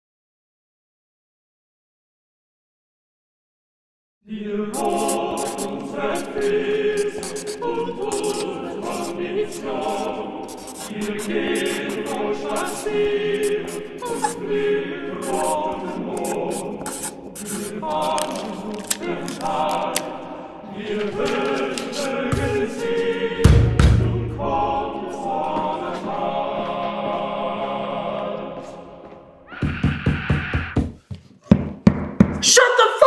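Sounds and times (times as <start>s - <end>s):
choir singing a cappella: 4.2s - 29.5s.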